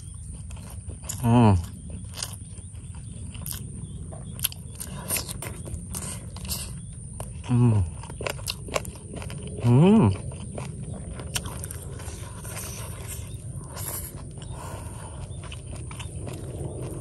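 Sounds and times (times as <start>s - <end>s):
man chewing and lip-smacking: 0.0s - 17.0s
man humming mmm: 1.1s - 1.7s, 7.5s - 7.9s.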